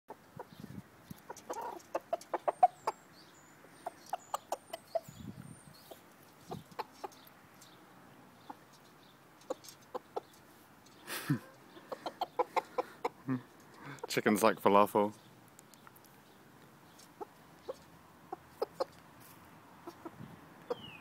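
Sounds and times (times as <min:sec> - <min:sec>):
rooster clucking: 0:00.1 - 0:00.6, 0:01.2 - 0:03.1, 0:03.8 - 0:05.2, 0:05.8 - 0:07.2, 0:09.4 - 0:10.4, 0:11.3 - 0:14.2, 0:17.0 - 0:19.0, 0:19.7 - 0:21.0
small birds chirping: 0:00.1 - 0:21.0.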